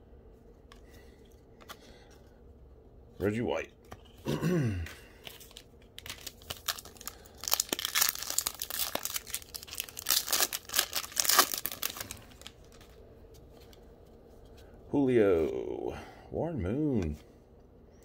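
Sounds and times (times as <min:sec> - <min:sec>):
foil wrapper tearing and crinkling: 0:05.4 - 0:12.9.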